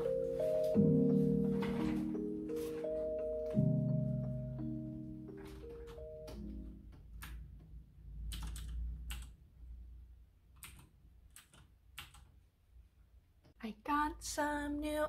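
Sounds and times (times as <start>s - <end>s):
background music: 0.0s - 6.8s
keyboard typing: 8.2s - 9.4s, 10.5s - 12.3s.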